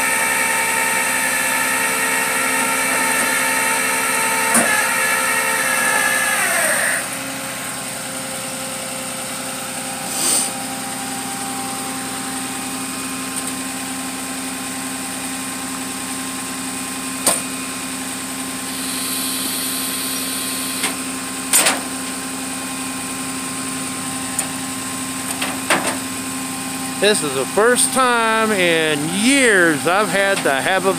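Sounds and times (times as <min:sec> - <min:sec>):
winch whine: 0:00.0 - 0:07.3, 0:18.6 - 0:21.0, 0:26.6 - 0:30.9
truck engine idling: 0:00.0 - 0:30.9.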